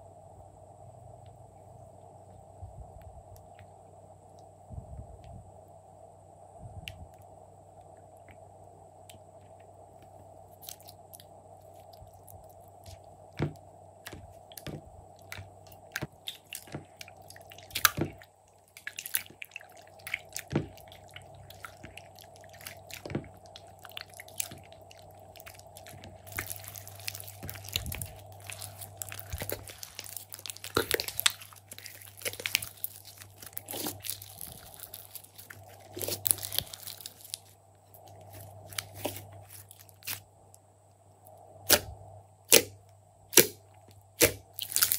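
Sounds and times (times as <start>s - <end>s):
slime squelching and clicking: 10.6s - 40.2s.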